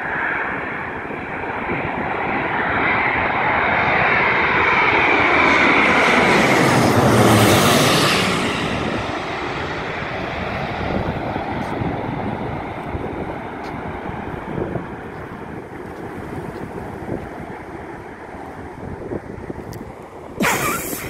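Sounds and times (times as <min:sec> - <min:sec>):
jet plane passing overhead: 0:00.0 - 0:21.0.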